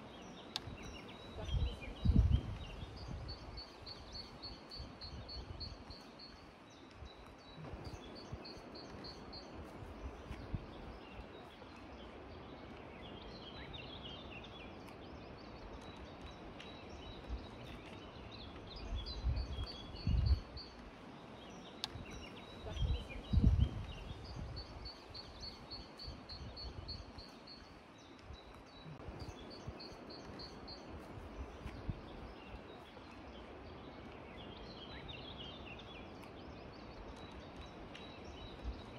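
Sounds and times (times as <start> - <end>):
birds twittering: 0.0 - 38.9
songbirds trilling: 0.0 - 38.9
wind buffeting microphone: 0.0 - 38.9.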